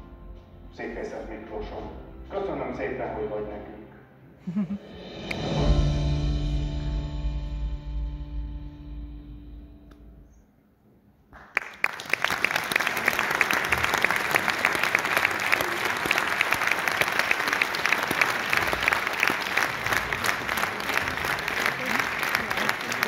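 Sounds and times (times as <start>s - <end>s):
audience applause: 11.4s - 23.0s.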